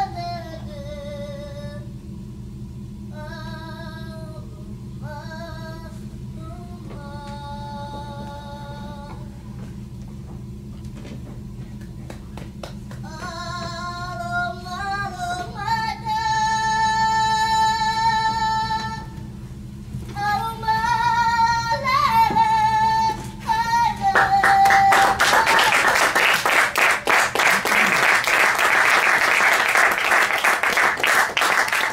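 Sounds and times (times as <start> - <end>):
woman singing: 3.1 - 9.3, 13.0 - 19.2, 20.1 - 25.9
audience applause: 24.2 - 31.9.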